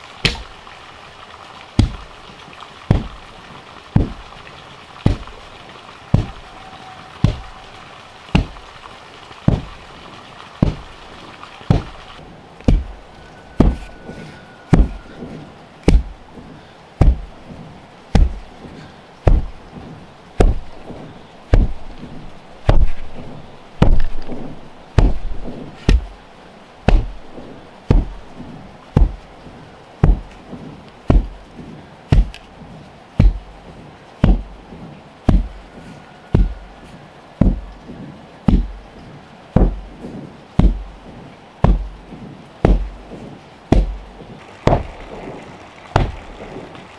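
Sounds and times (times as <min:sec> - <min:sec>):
tamper thudding on earth: 0:12.6 - 0:13.0, 0:32.1 - 0:32.4, 0:38.5 - 0:38.8, 0:39.6 - 0:40.9, 0:41.6 - 0:45.1.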